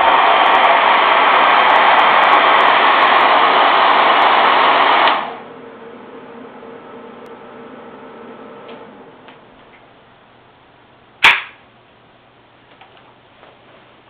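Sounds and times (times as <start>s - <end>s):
hair dryer blowing: 0.0s - 9.6s.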